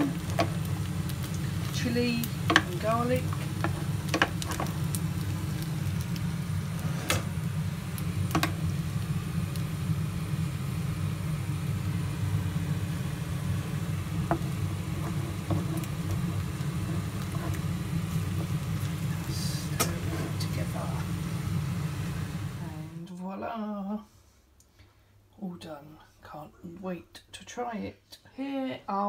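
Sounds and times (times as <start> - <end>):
steady low hum: 0.0 - 23.9
spoon stirring fried rice: 2.3 - 5.6, 14.2 - 20.5.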